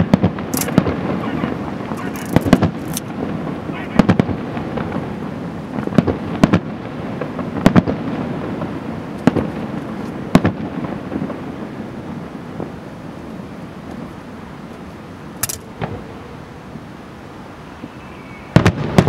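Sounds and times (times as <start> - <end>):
firework shells bursting: 0.0 - 3.4, 15.4 - 16.0.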